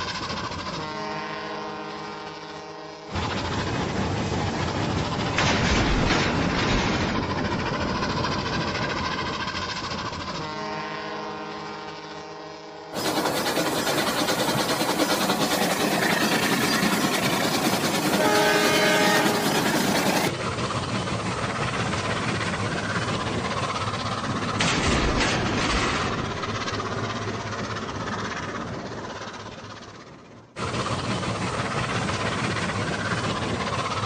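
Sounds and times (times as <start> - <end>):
train rumble and clatter: 0.0 - 34.0
train horn: 0.6 - 3.2, 10.3 - 13.0, 17.2 - 20.3.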